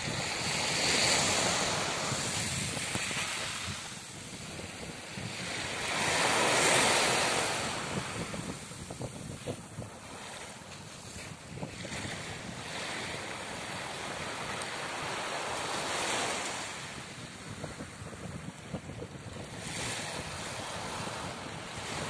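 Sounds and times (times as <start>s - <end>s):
small waves breaking on beach: 0.0s - 22.0s
wind buffeting microphone: 0.0s - 22.0s.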